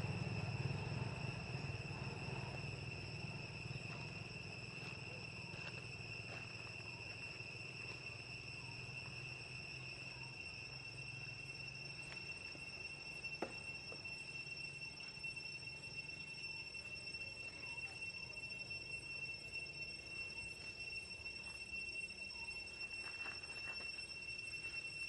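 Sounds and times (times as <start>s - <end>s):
insects droning: 0.0s - 25.0s.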